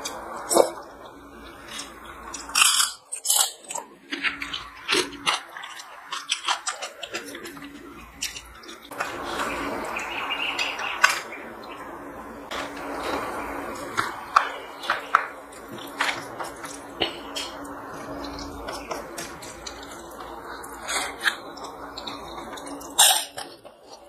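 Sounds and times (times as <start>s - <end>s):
mouth-noisy chewing: 0.0s - 11.8s
wet squishing of food: 0.0s - 24.0s.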